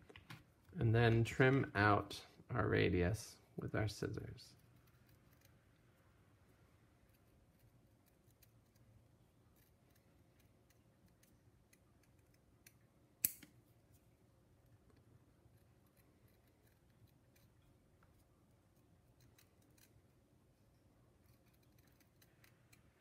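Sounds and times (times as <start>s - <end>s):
sharp click: 13.2s - 13.5s.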